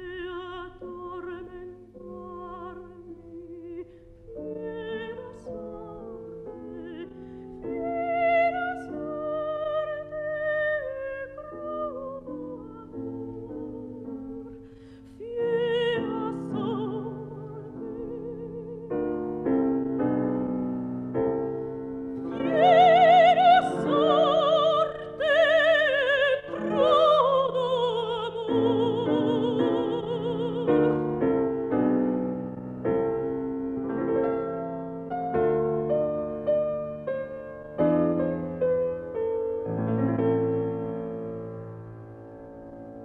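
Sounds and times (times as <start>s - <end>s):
woman singing opera with vibrato: 0.0s - 14.6s, 15.2s - 19.2s, 22.2s - 31.4s
piano accompaniment: 0.0s - 43.0s.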